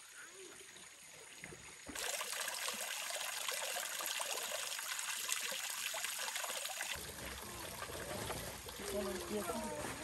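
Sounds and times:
water trickling into pond: 0.0 - 10.0.

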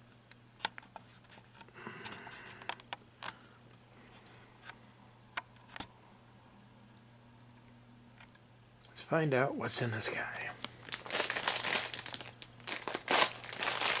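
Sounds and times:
bag rustling: 10.8 - 14.0
foil bag crinkling: 10.8 - 14.0.

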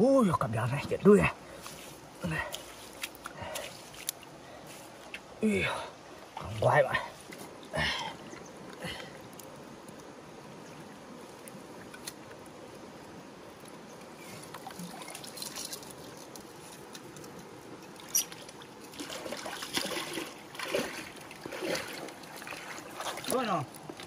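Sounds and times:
fish splashing in water: 18.0 - 23.5.

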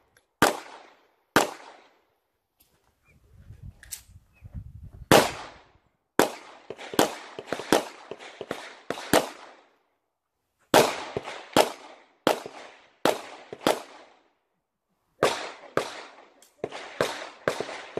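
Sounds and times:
pistol shots: 0.4 - 2.0, 5.1 - 5.6, 6.2 - 9.7, 10.7 - 14.2, 15.2 - 17.9.

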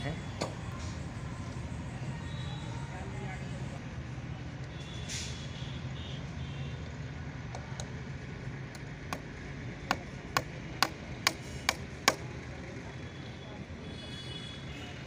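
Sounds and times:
hammer striking a nail into wood: 0.4 - 0.6, 9.9 - 12.3.

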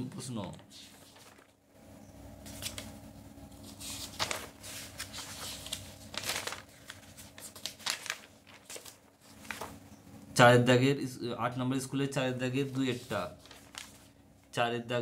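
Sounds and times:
paper rustling and crinkling: 0.6 - 1.6, 2.4 - 9.8, 12.6 - 14.2.

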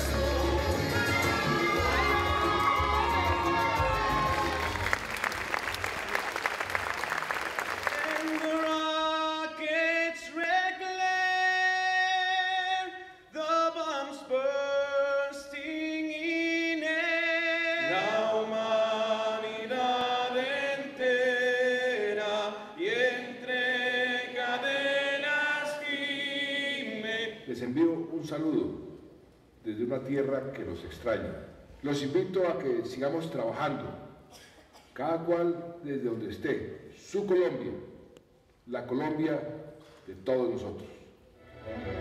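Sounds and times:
voices singing slow song: 0.0 - 4.8, 11.0 - 27.5
audience applauding and cheering: 0.0 - 9.1.

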